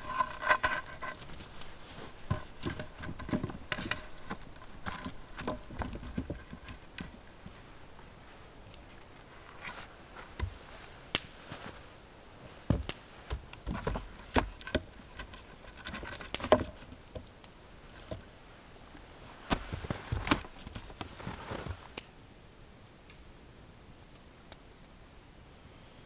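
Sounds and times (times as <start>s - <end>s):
logs knocking as stacked: 2.2s - 7.2s, 12.7s - 17.3s.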